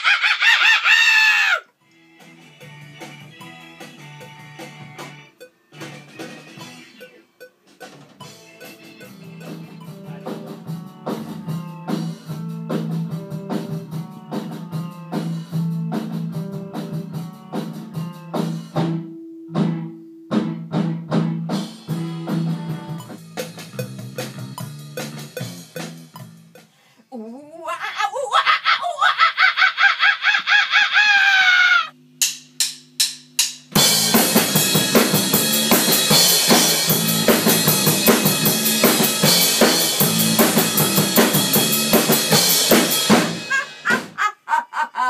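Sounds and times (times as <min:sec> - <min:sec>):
band playing instrumental: 0:02.2 - 0:26.6, 0:33.8 - 0:44.2
drum beat: 0:02.6 - 0:18.8, 0:20.4 - 0:26.7, 0:32.1 - 0:44.4.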